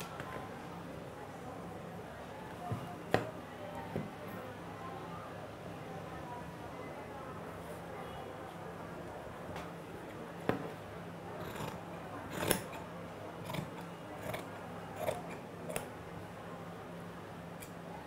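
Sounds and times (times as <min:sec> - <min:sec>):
shears cutting fabric: 0:11.4 - 0:12.8, 0:13.4 - 0:15.9.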